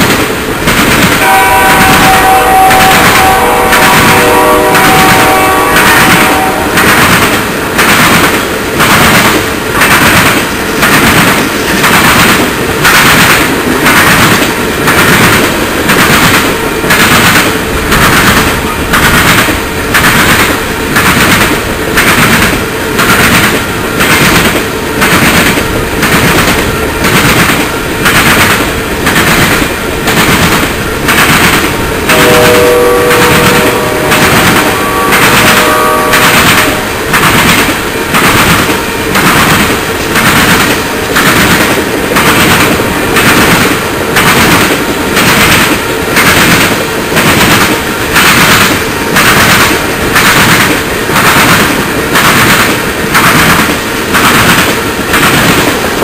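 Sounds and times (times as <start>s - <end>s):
train wheels clacking on rails: 0.0s - 56.0s
steady chord of tones: 31.7s - 39.1s.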